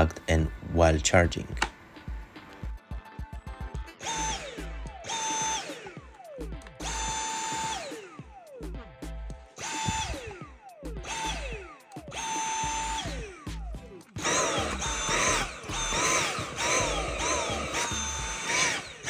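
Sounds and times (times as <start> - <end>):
cordless vacuum motor whine: 4.0 - 8.5, 9.6 - 13.4, 14.2 - 19.0.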